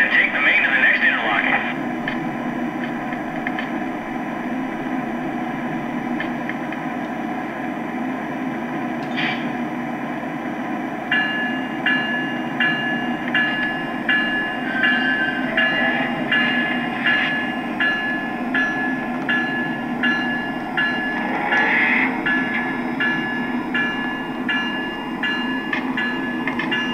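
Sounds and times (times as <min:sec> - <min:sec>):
diesel engine rumble: 0:00.0 - 0:11.2, 0:11.8 - 0:26.9
locomotive bell ringing: 0:11.1 - 0:26.9.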